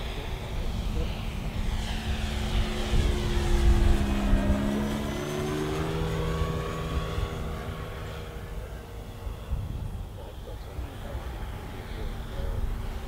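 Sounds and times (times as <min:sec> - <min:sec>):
model plane motor droning: 0:00.0 - 0:13.0
wind rumbling on microphone: 0:00.0 - 0:13.0.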